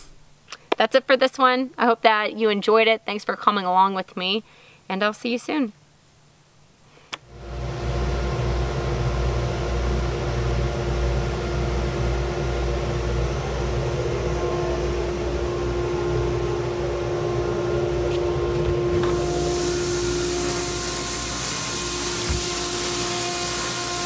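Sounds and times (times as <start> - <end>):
dust collector motor running: 7.3 - 24.0.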